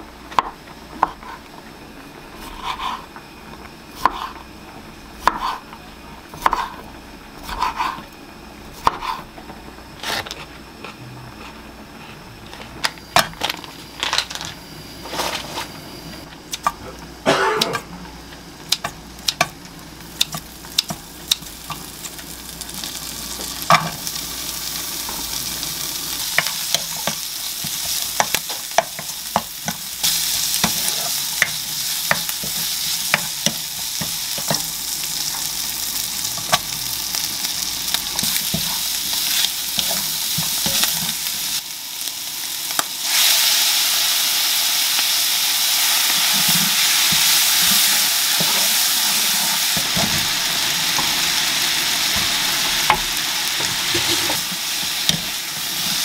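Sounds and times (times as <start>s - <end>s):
food sizzling in a pan: 17.1s - 56.0s.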